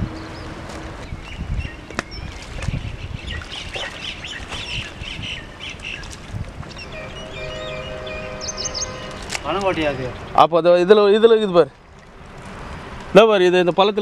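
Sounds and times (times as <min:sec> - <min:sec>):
birds squawking: 0:01.2 - 0:10.4
droning tone: 0:06.7 - 0:10.2.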